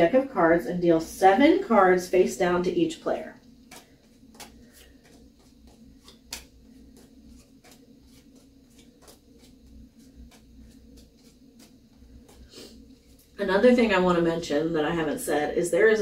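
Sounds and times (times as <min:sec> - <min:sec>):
faint steady hum: 0:00.0 - 0:16.0
cards tapping and sliding on table: 0:03.6 - 0:13.2.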